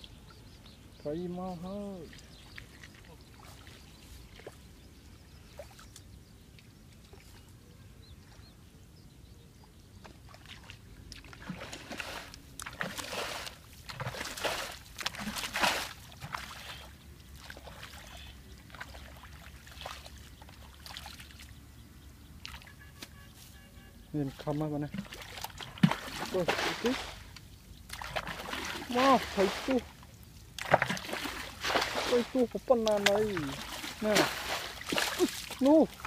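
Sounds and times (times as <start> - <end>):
faint water movement: 0.0 - 22.8, 24.1 - 36.0
splashing in muddy water: 1.8 - 4.7, 10.0 - 21.6, 22.4 - 23.1, 24.2 - 36.0.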